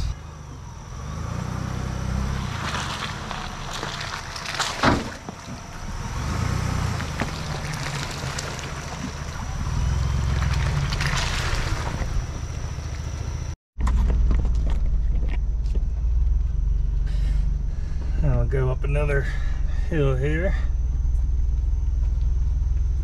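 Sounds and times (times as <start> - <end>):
engine rumble inside cabin: 0.0 - 23.0
low engine rumble: 0.0 - 23.0
tyres splashing in mud: 1.9 - 13.6.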